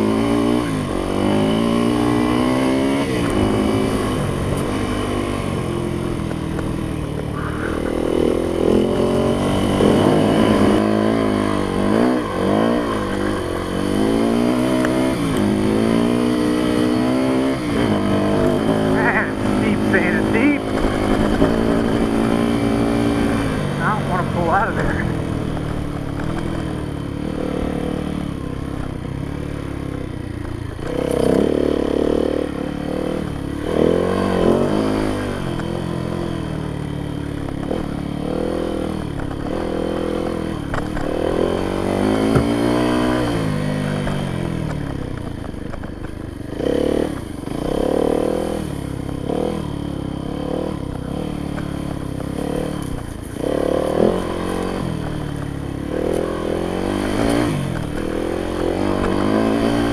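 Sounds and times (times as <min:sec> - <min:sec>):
dirt bike engine revving: 0:00.0 - 0:59.9
sharp knock: 0:42.2 - 0:42.6.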